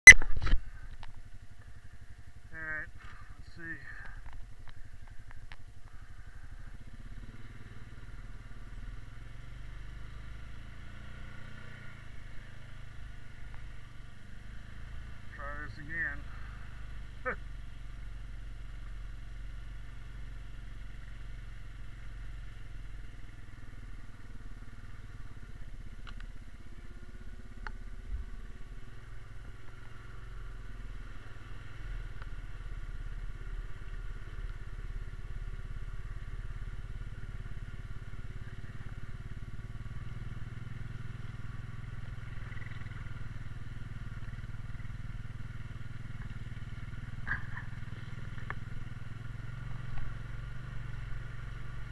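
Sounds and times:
quad bike engine running: 0.0s - 51.9s.

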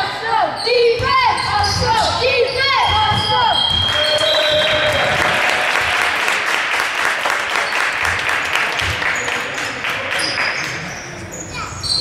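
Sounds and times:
crowd clapping: 3.9s - 10.9s.

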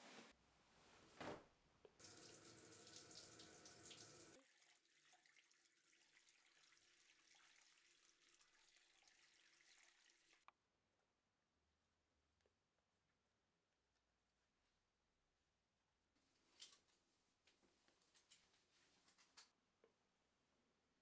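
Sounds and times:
tap water running into sink: 2.0s - 10.4s.

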